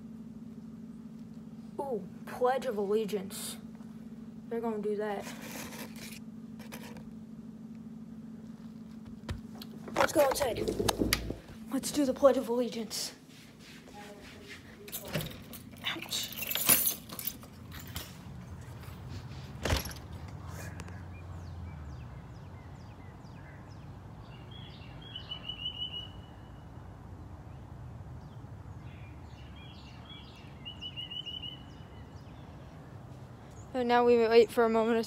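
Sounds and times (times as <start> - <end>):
sharp knocks and clicks: 9.0 - 11.5
small birds chirping: 20.4 - 26.7, 27.5 - 35.0.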